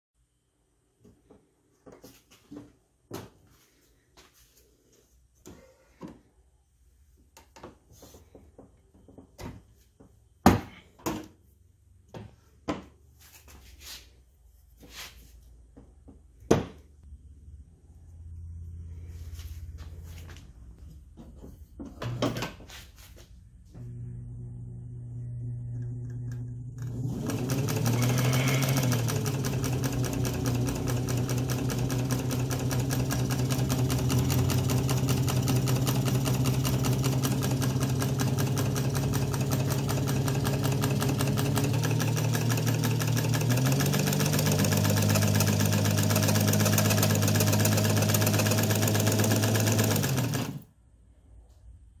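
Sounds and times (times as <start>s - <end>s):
sewing machine needle clatter: 26.8s - 50.6s.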